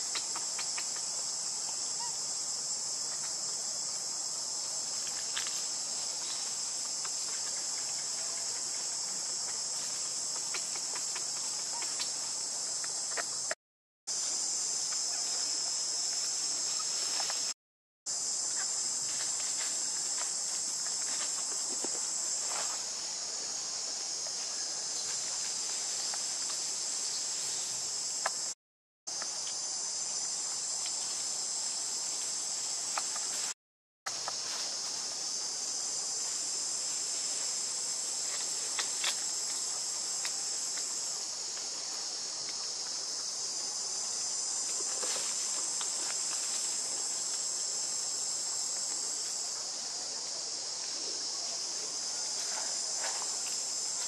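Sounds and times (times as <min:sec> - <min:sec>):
high-pitched insect chorus: 0:00.0 - 0:54.0.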